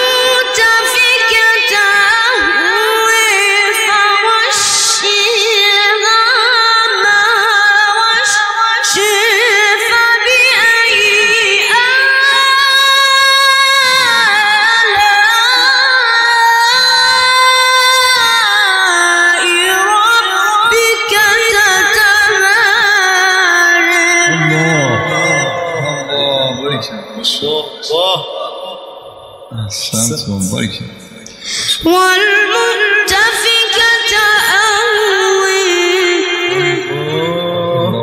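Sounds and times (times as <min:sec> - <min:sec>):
man reciting melodically: 0:13.8 - 0:15.8, 0:23.8 - 0:31.6, 0:36.4 - 0:38.0.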